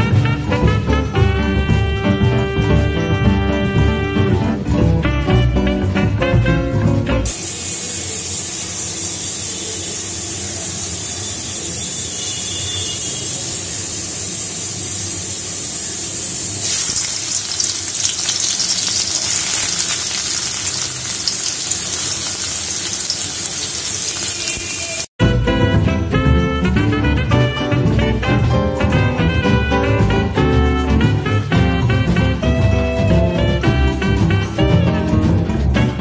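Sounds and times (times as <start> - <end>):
oil hissing in wok: 7.3 - 25.1
onions sizzling in oil: 7.3 - 25.1.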